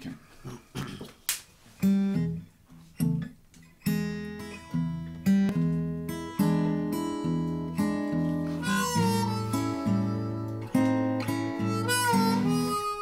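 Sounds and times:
acoustic guitar strumming chords: 0:03.0 - 0:13.0.

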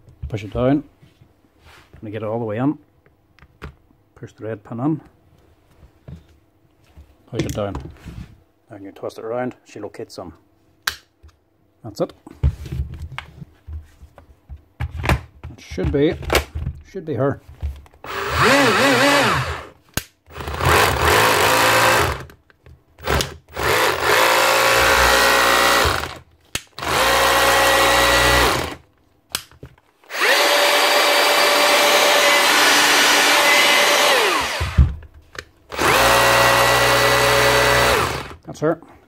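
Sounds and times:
rotary hammer motor whining: 0:18.1 - 0:19.7, 0:20.3 - 0:22.3, 0:23.0 - 0:26.2, 0:26.8 - 0:28.8, 0:30.1 - 0:34.9, 0:35.7 - 0:38.4.

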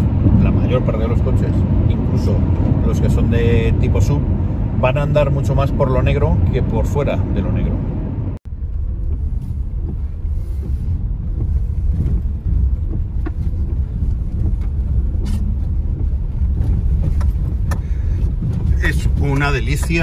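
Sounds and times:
car engine and tyre rumble: 0:00.0 - 0:20.0.

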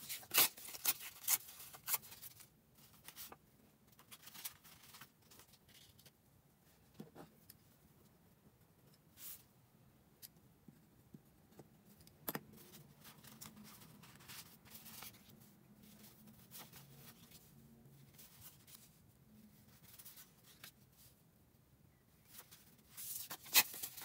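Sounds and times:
paper rustling: 0:22.3 - 0:24.0.

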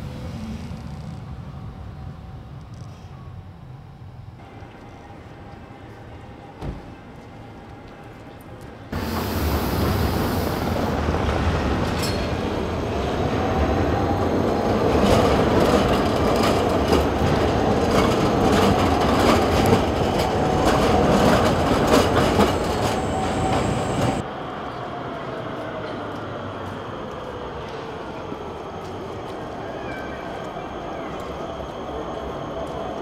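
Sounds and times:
tram wheels rumbling on rails: 0:00.0 - 0:33.0
tram motor whine: 0:09.0 - 0:24.2
wheels clicking on track: 0:09.0 - 0:24.2.

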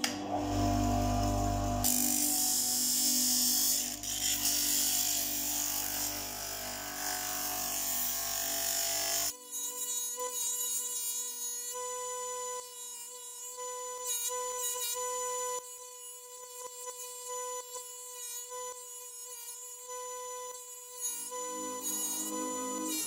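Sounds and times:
music with held tones: 0:00.0 - 0:07.4, 0:21.3 - 0:23.0
disc sander sanding wood: 0:00.1 - 0:09.3, 0:21.2 - 0:23.0.

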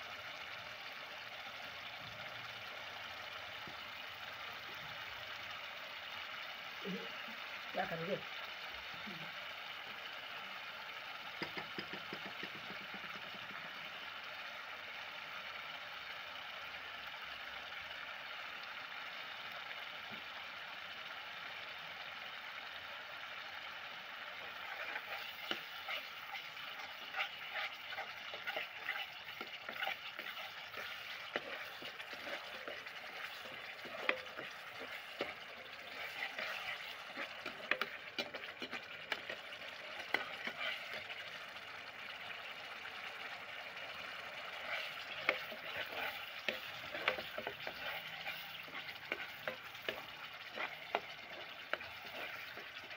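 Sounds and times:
masala sizzling and bubbling: 0:00.0 - 0:52.9
metal spoon scraping a pan: 0:24.4 - 0:41.5, 0:44.3 - 0:52.9.

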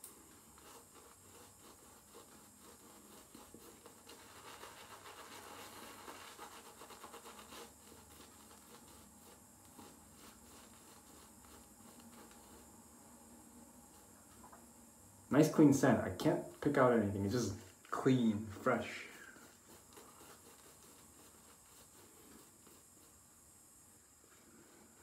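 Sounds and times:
shaving brush scratchy swishing: 0:00.2 - 0:12.7, 0:16.6 - 0:23.4.

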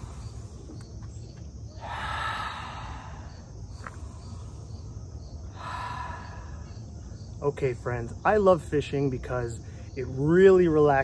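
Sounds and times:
faint crickets chirping: 0:00.0 - 0:11.0
man breathing in through mouth: 0:01.8 - 0:06.8.

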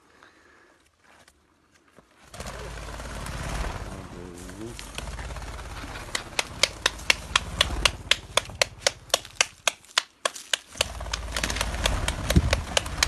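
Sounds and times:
partridges clucking: 0:04.8 - 0:13.0.

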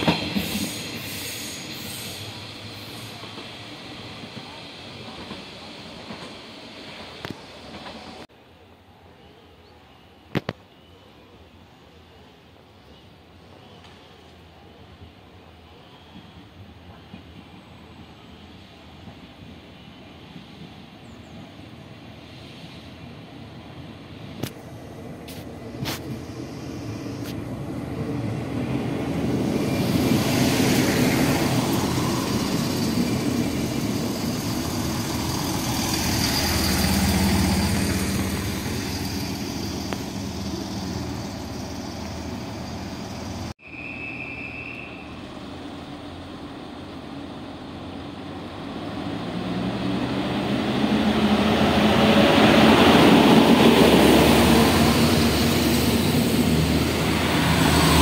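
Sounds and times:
diesel train running: 0:00.0 - 0:08.2, 0:23.6 - 0:58.0
train engine running: 0:24.2 - 0:43.5.

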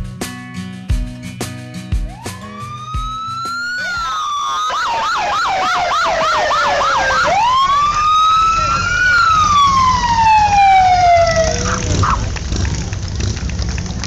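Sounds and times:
guitar music: 0:00.0 - 0:04.1
emergency vehicle siren: 0:02.0 - 0:12.4.

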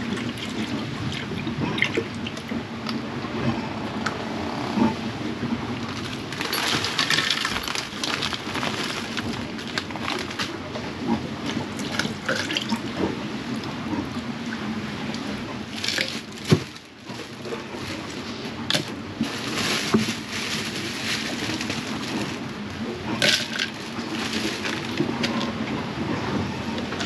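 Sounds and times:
steady rushing noise: 0:02.6 - 0:07.0
knocks and rustles of handling: 0:05.8 - 0:12.1, 0:15.1 - 0:25.6.

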